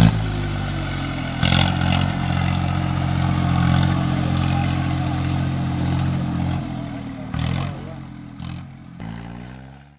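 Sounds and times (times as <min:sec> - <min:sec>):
tractor diesel engine running: 0:00.0 - 0:09.9.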